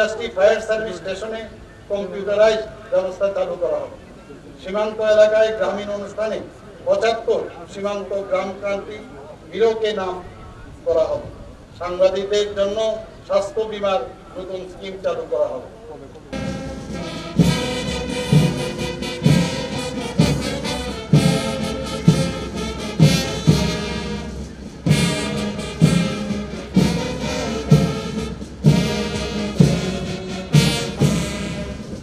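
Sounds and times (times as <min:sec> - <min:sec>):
brass band playing a march: 0:16.3 - 0:32.0
bass drum beat: 0:16.4 - 0:32.0.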